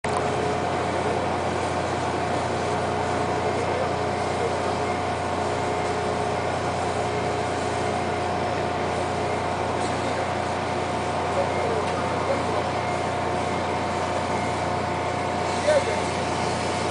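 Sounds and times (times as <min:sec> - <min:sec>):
ship engine droning at idle: 0:00.0 - 0:16.9.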